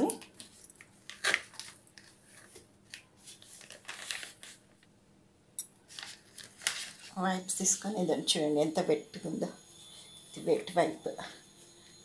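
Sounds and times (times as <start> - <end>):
plastic wipes pack crinkling: 0.1 - 4.8, 5.9 - 7.2.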